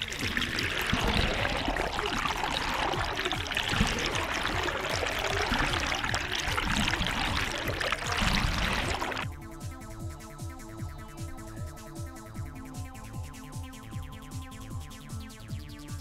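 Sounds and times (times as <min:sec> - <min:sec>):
water rushing and splashing: 0:00.0 - 0:09.2.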